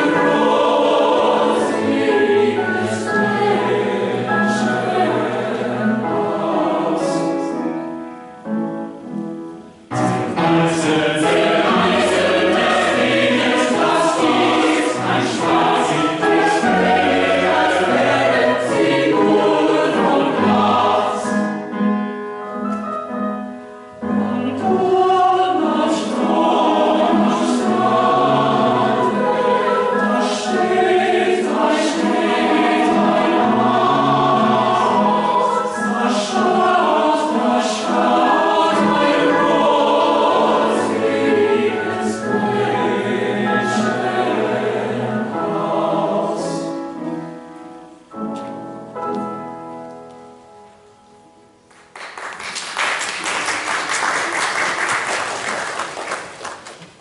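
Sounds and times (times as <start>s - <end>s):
mixed choir singing: 0.0s - 8.0s, 9.9s - 21.9s, 24.0s - 47.4s.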